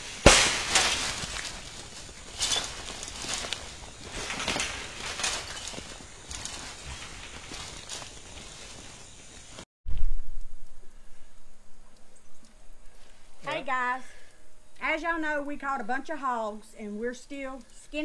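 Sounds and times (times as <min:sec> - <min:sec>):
hogs scrambling in a trap: 0:00.0 - 0:09.5.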